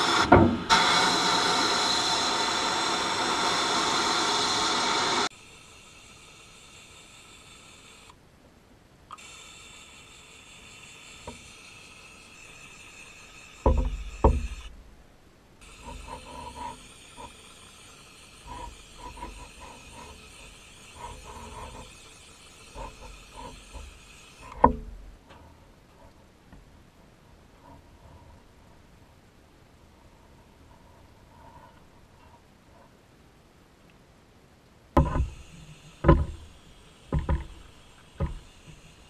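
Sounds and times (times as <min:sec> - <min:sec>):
spray gun hissing: 0:00.0 - 0:08.2, 0:09.1 - 0:14.8, 0:15.6 - 0:24.8, 0:35.0 - 0:39.0
sputtering pulses: 0:15.6 - 0:24.6.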